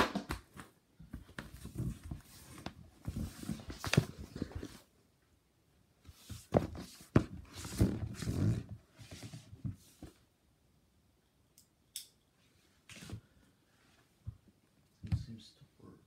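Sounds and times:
clothes rustling: 1.0s - 4.9s, 6.0s - 10.3s.

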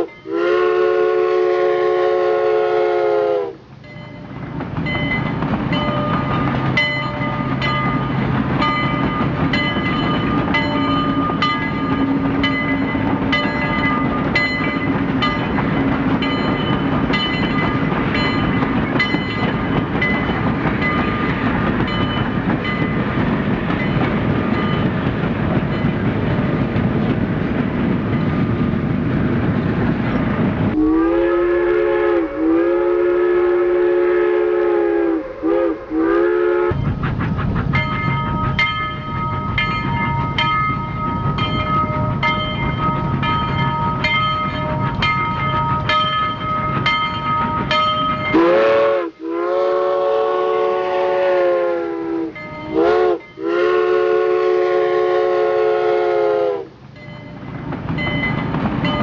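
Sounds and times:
steam locomotive whistle: 0.0s - 3.7s, 30.8s - 36.9s, 47.6s - 56.8s
steam train rumbling: 0.0s - 59.0s
bell ringing: 3.8s - 15.6s, 37.8s - 48.4s.

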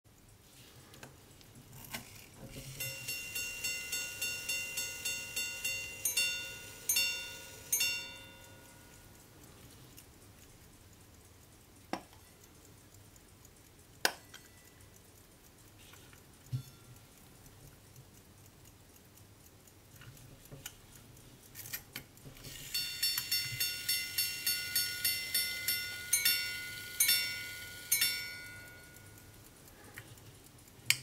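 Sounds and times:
watch mechanism click: 0.2s - 31.0s
pocket watch striking chimes: 2.8s - 9.0s, 22.6s - 29.4s.

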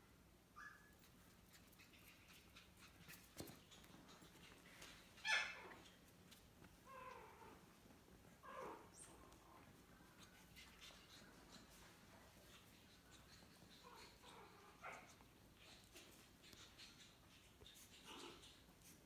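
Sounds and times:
young pet high cries: 5.2s - 5.8s.

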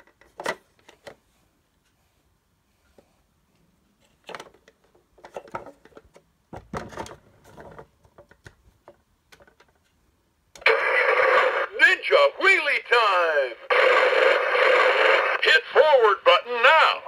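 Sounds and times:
plastic toy knocks and rattles: 4.2s - 9.9s.

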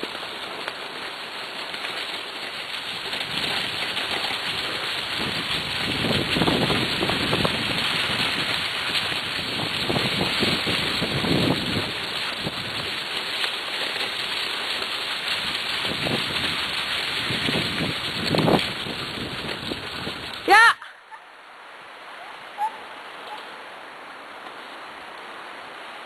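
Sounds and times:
wheels crunching over gravel: 0.0s - 20.6s, 22.6s - 26.0s
wind on microphone: 2.9s - 12.9s, 15.4s - 20.5s.

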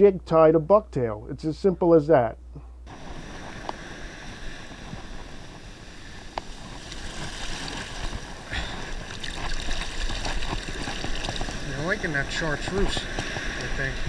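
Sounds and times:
surf rushing and hissing: 2.9s - 14.0s
small water splashes: 8.8s - 11.6s.

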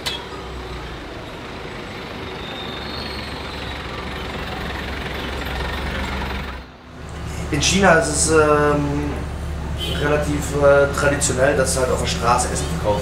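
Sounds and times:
hum of passing vehicles: 0.0s - 13.0s.

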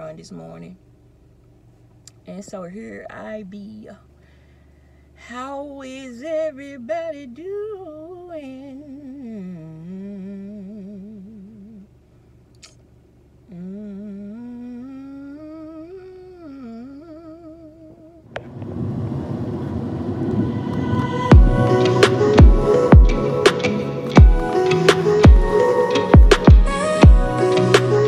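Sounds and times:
woman humming a tune: 13.5s - 18.2s
music with deep bass hits: 18.4s - 28.0s.

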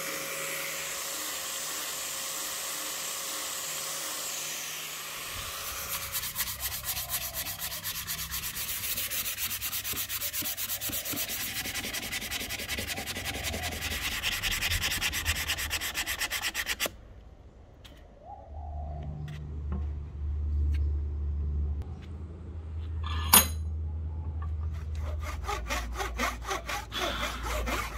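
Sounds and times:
sandpaper rubbing on wood: 5.5s - 16.9s, 25.4s - 27.9s.

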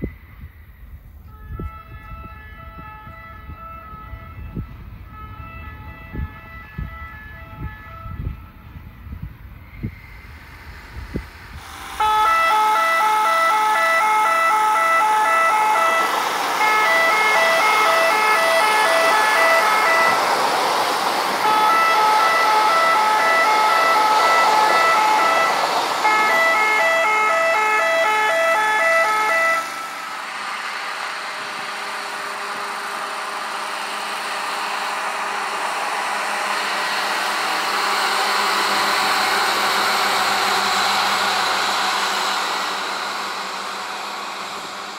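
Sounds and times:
multi-tone warning horns: 0.0s - 44.9s
rushing noise of rail traffic: 0.0s - 44.9s.

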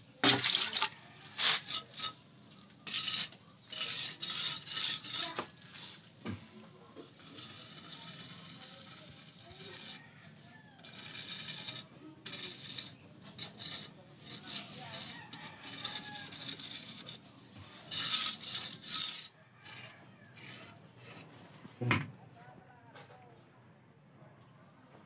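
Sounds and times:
trowel scraping wet mortar: 0.2s - 6.1s, 6.9s - 21.8s.

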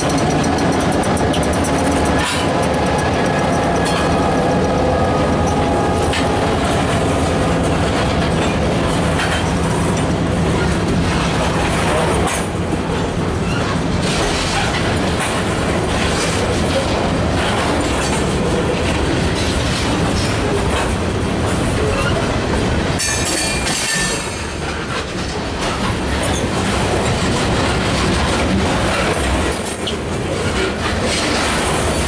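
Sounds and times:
train wheels clacking on rail joints: 0.0s - 32.0s.

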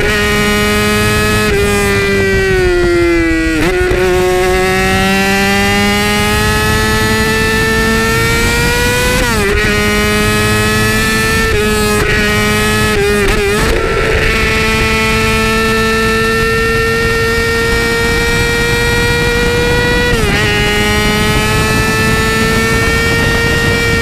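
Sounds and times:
motorcycle engine revving: 0.0s - 24.0s
wind rush: 0.0s - 24.0s.

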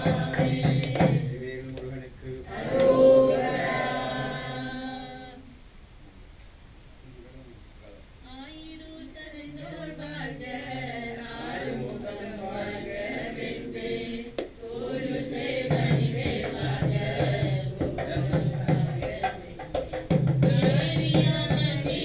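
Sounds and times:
percussion: 0.0s - 3.9s, 10.4s - 22.0s
voices chanting together: 0.0s - 5.6s, 9.4s - 22.0s.

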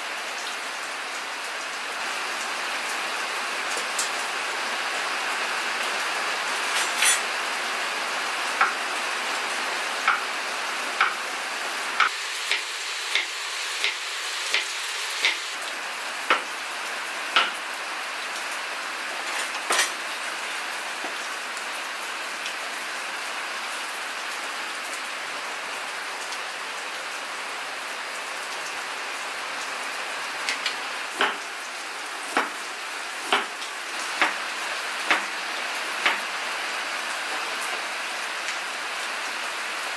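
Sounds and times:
rain hiss: 0.0s - 39.9s.

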